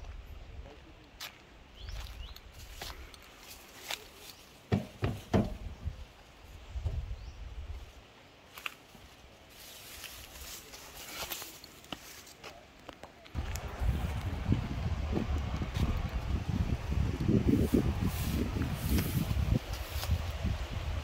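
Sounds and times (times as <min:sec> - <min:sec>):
sharp knocks: 0:04.7 - 0:05.7
wind buffeting microphone: 0:05.4 - 0:07.8, 0:13.4 - 0:21.0.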